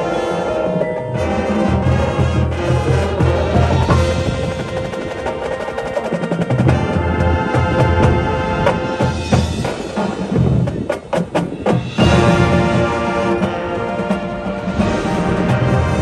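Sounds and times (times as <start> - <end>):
sharp percussion strikes: 0.0 - 7.1, 8.7 - 14.2
marching band playing: 0.0 - 16.0.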